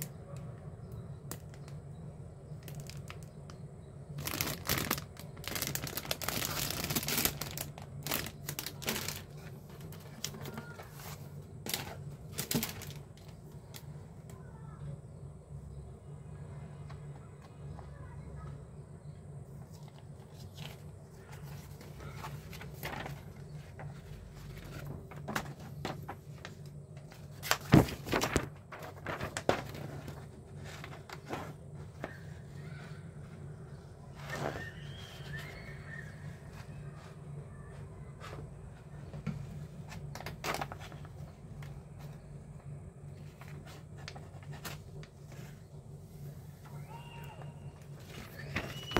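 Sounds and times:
low steady hum: 0.0s - 48.9s
plastic bags crinkling: 2.6s - 3.3s, 4.2s - 11.0s, 11.6s - 13.4s
paper sheet rustling: 4.2s - 13.2s, 19.7s - 32.9s, 47.9s - 48.9s.

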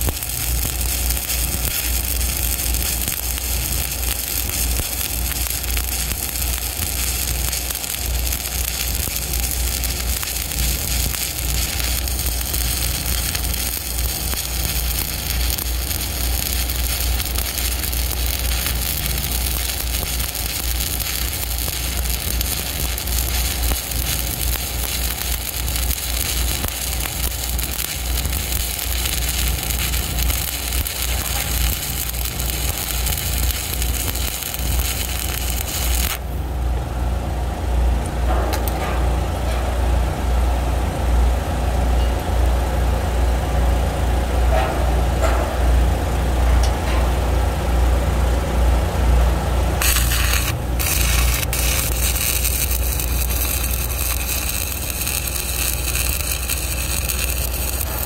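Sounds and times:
welding arc crackling hiss: 0.0s - 36.4s, 49.2s - 58.0s.

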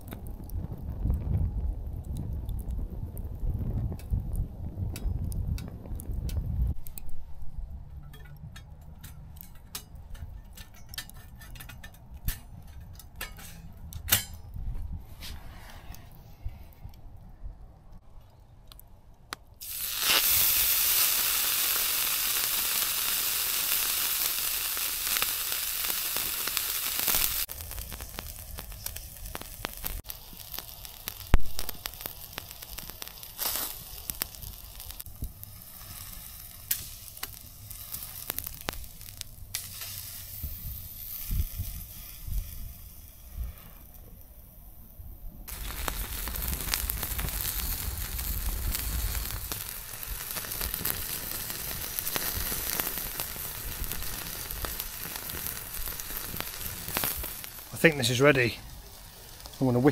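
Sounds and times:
wood fire crackling: 0.0s - 59.9s
steak sizzling on grill: 19.6s - 43.8s, 45.5s - 59.9s.

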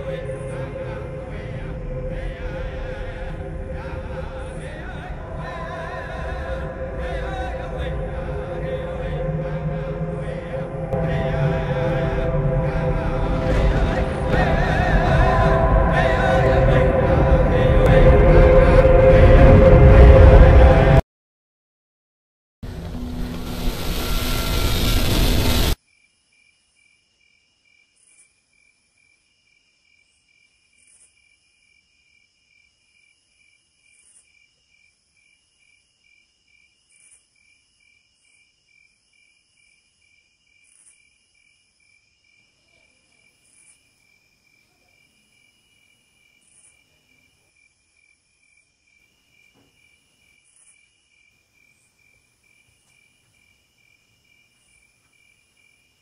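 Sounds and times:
continuous high insect trill: 25.8s - 56.0s
insect chirping: 25.8s - 56.0s.

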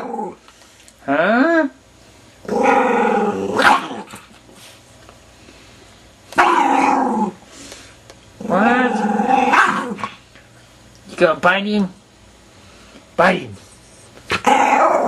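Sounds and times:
dog growling: 0.0s - 0.4s, 2.4s - 4.2s, 6.4s - 7.4s, 8.4s - 10.2s, 14.3s - 15.0s.

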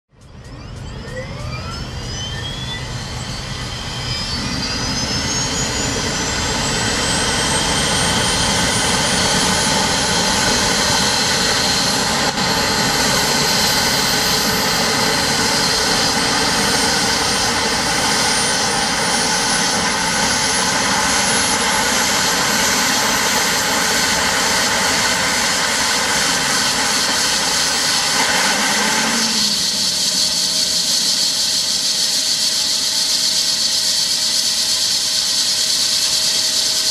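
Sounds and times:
helicopter turbine whine: 0.1s - 36.9s.

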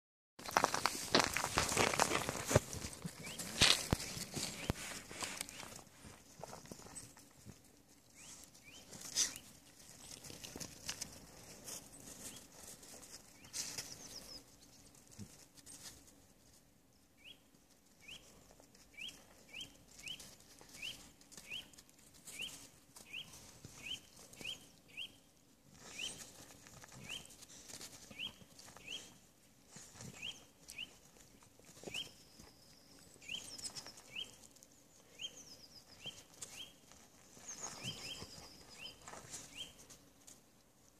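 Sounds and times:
paws scraping on icy snow: 0.4s - 16.6s, 25.7s - 40.3s.

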